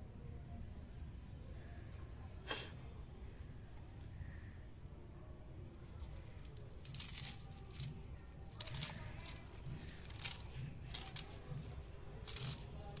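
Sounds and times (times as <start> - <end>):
crickets chirping: 0.0 - 13.0
spinach leaves tearing and snapping: 6.6 - 13.0.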